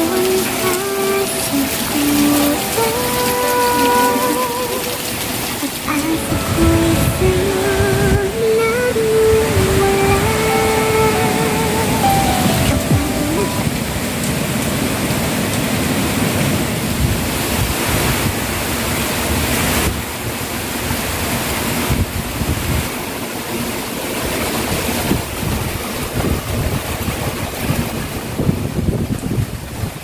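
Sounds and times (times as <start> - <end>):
heavy rain: 0.0 - 30.0
strong wind gusting through trees: 0.0 - 30.0
wind buffeting microphone: 24.4 - 30.0.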